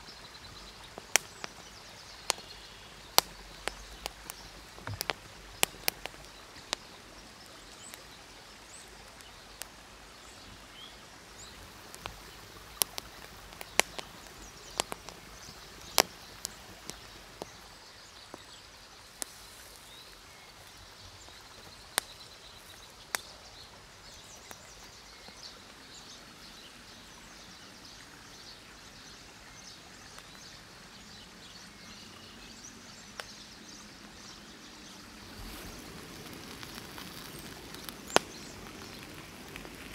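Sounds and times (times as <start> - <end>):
wood fire popping and crackling: 0.0 - 25.8, 34.8 - 39.9
river hissing: 0.0 - 39.9.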